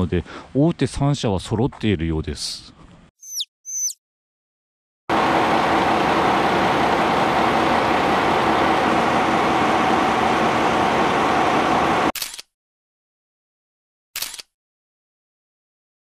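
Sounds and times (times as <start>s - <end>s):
diesel engine idling: 5.1s - 12.1s.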